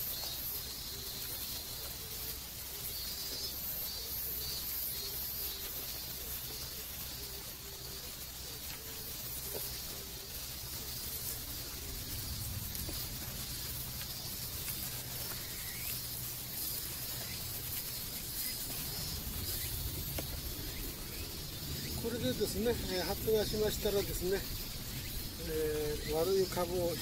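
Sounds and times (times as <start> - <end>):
faint ticks: 0.0 - 20.9
high hiss: 0.0 - 27.0
low uneven rumble: 5.2 - 27.0.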